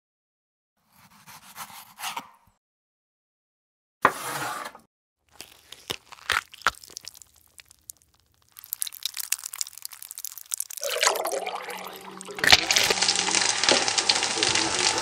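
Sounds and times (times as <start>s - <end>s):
crunching and cracking: 5.2s - 11.1s.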